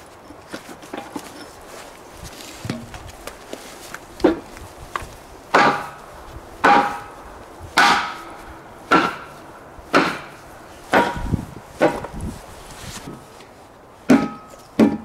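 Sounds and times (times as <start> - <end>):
sledgehammer thudding on wood: 5.5 - 6.0, 6.6 - 7.1, 7.8 - 8.3, 8.9 - 12.2, 14.1 - 15.0.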